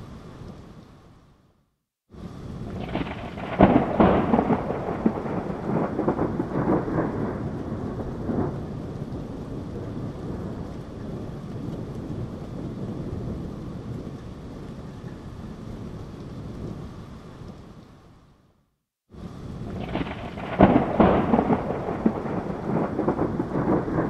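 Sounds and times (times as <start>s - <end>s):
steady rain: 0.0s - 24.0s
thunder cracks and rumbling: 2.2s - 16.9s, 19.2s - 24.0s.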